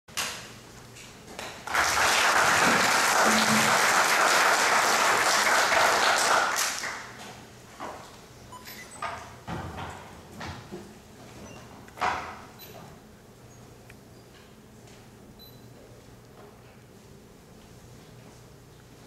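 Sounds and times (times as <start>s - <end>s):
audience applauding: 1.6s - 7.2s.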